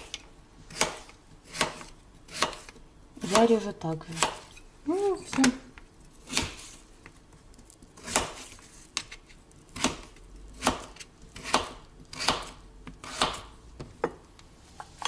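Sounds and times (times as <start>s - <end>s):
knife chopping on cutting board: 0.7s - 3.5s, 4.2s - 4.5s, 6.2s - 6.7s, 8.0s - 8.6s, 9.8s - 13.5s.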